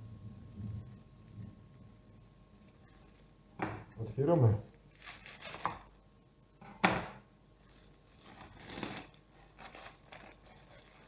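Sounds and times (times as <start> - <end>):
plastic film crinkling: 4.7 - 5.9, 7.6 - 11.0
knife cutting plastic film: 4.9 - 5.9, 7.7 - 11.0.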